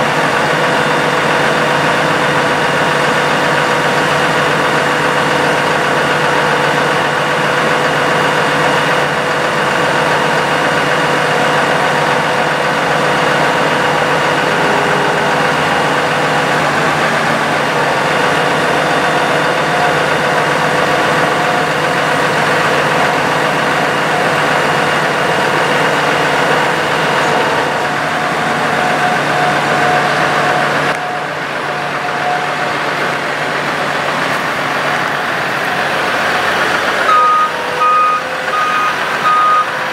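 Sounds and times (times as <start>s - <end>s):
diesel engine idling: 0.0s - 39.9s
hydraulic whining tones: 10.0s - 39.9s.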